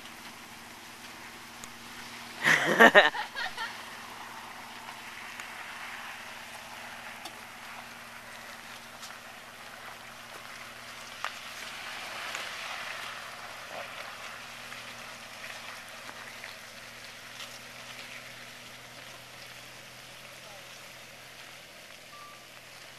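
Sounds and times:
faint low engine hum: 0.0 - 22.9
tyres crackling on gravel: 0.0 - 22.9.

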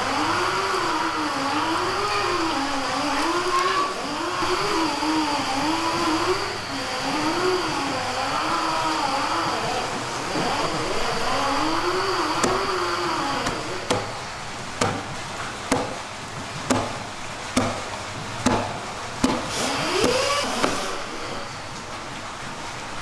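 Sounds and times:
wavering mechanical whine: 0.0 - 14.7, 19.7 - 22.1
cleaver chopping on wooden board: 13.9 - 14.1, 14.8 - 15.1, 15.7 - 16.0, 16.7 - 17.0, 17.6 - 17.8, 18.4 - 20.8.

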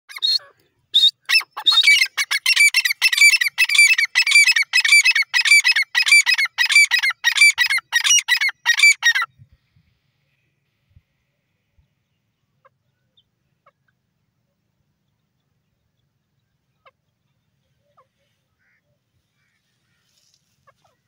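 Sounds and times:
bird calling ringing notes: 0.1 - 9.3.

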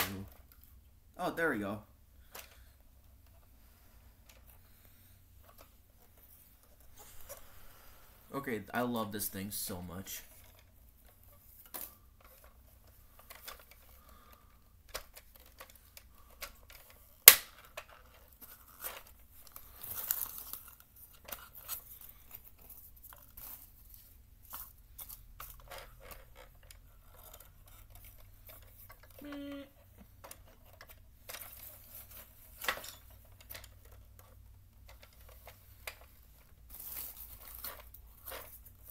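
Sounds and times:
cardboard rustling: 16.6 - 38.9.

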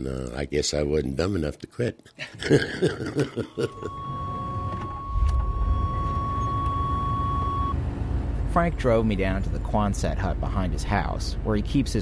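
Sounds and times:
steady high tone: 3.5 - 7.8
vehicle engine rumble: 3.8 - 12.0.

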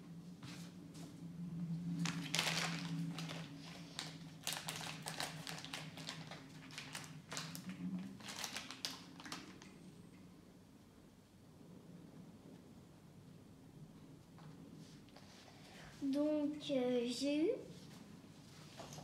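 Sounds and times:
plastic pouch crinkling: 2.0 - 9.7.

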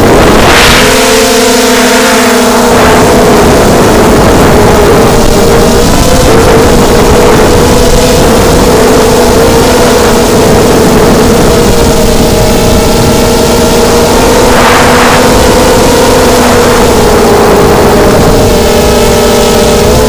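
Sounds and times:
quadcopter motors whining: 0.0 - 20.0
rushing air noise: 0.0 - 20.0.

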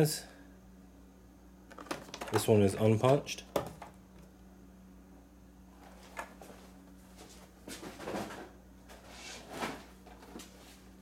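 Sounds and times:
steady low hum: 0.0 - 11.0
cardboard and plastic rustling: 1.7 - 3.9, 5.8 - 10.9.

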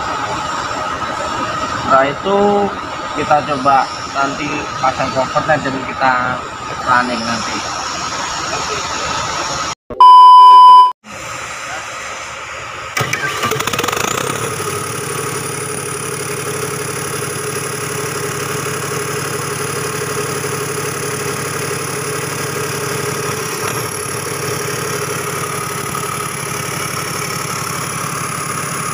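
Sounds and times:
diesel engine starting and idling: 0.0 - 9.8, 11.1 - 28.9.

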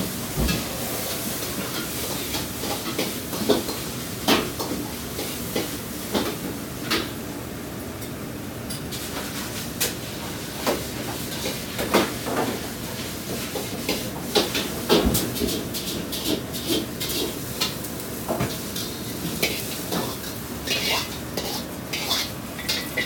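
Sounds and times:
steady background noise: 0.0 - 23.0
dishes and utensils clattering: 13.4 - 23.0.

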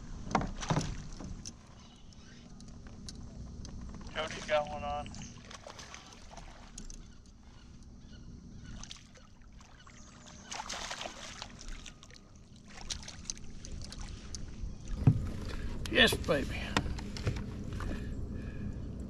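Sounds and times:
fish splashing at water surface: 8.8 - 14.2.

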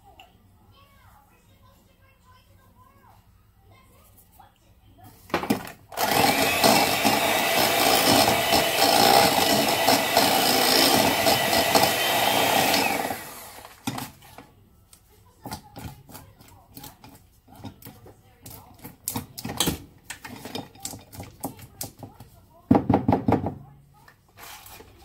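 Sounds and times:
electric hand mixer running: 5.9 - 13.9.

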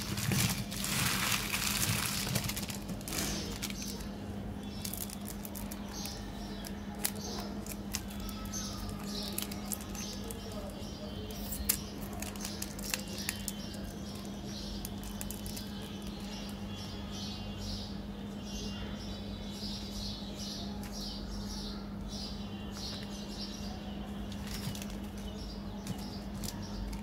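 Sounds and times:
plastic wrapper crinkling: 0.0 - 16.6, 24.3 - 27.0.

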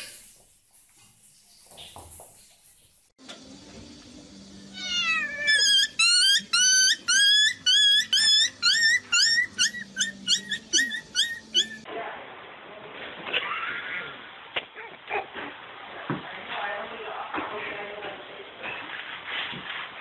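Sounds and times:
young animal squealing cries: 4.7 - 11.8.

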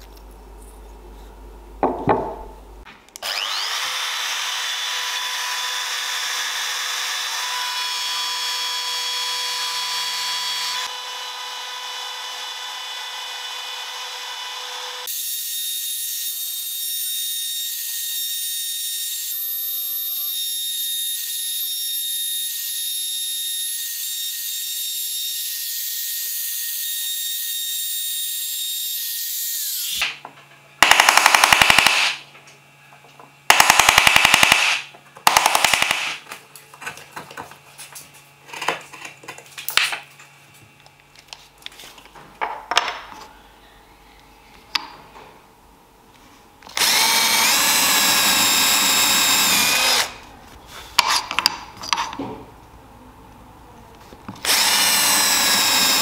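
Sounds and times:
router whining: 3.1 - 30.1, 33.5 - 36.2, 46.6 - 50.4, 54.3 - 56.0.

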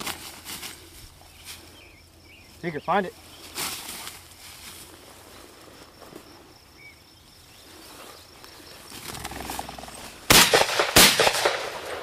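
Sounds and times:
shotgun shots: 10.3 - 12.0.

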